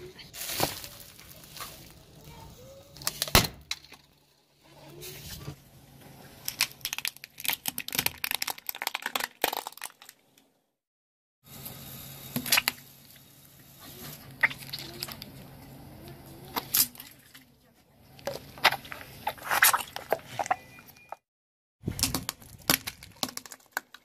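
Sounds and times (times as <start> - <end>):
plastic cracking under car tyre: 6.4 - 10.4, 22.0 - 24.0.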